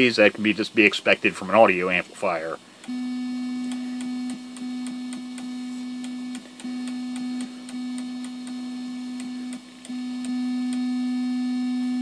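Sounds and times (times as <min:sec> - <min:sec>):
radio digital buzz: 0:01.5 - 0:12.0.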